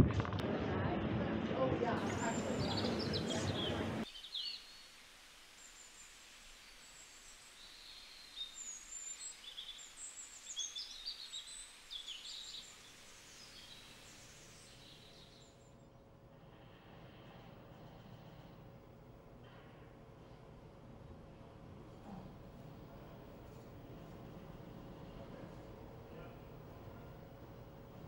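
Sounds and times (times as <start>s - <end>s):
small birds chirping: 2.0s - 5.0s, 5.6s - 15.9s
faint hiss: 4.0s - 15.6s.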